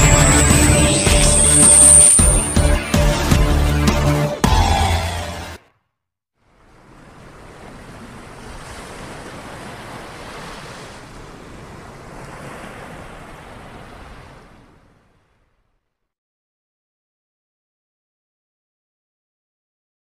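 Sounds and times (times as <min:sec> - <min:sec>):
rushing surf-like sound effect: 0:00.0 - 0:03.0.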